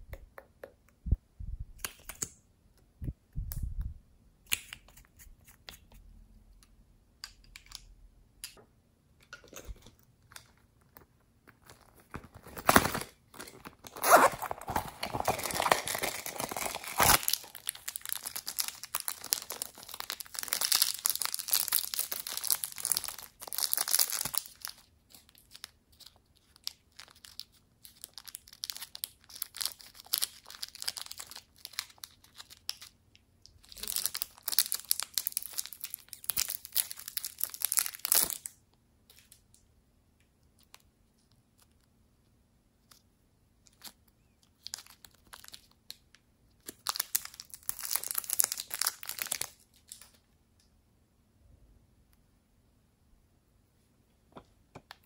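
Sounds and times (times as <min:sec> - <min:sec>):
plastic wrappers crinkling and tearing: 0:11.5 - 0:38.5, 0:43.7 - 0:50.2.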